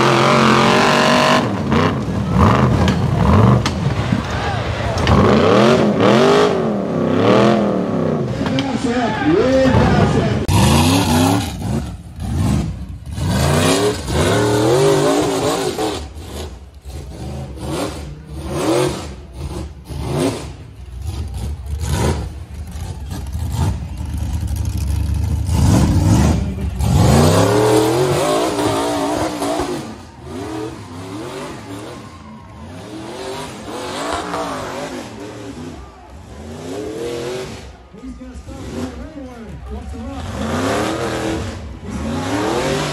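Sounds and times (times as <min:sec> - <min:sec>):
engine revving hard: 0:00.0 - 0:03.6, 0:05.0 - 0:08.3, 0:09.6 - 0:22.4, 0:25.3 - 0:32.1, 0:32.7 - 0:37.7, 0:40.1 - 0:42.9.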